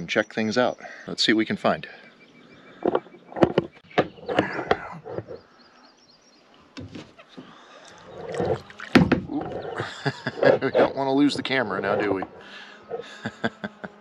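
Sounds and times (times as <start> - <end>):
soft water sounds: 7.8 - 9.6
kayak paddle knocking on hull: 8.8 - 9.4.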